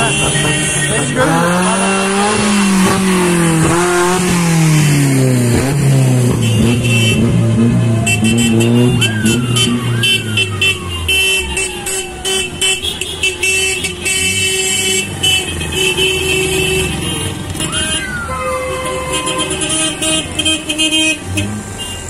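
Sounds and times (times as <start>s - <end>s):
car engines running: 0.0s - 22.0s
car horns honking: 0.0s - 22.0s
siren whoop: 7.4s - 13.0s, 17.6s - 19.6s.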